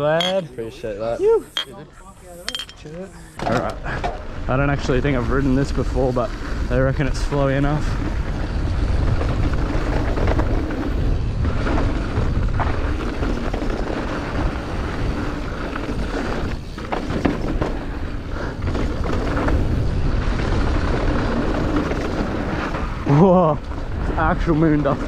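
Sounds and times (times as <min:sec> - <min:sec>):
bike tyres rolling on dirt: 0:03.0 - 0:25.0
wind buffeting microphone: 0:03.8 - 0:25.0
bike knocks and rattles: 0:08.8 - 0:22.9.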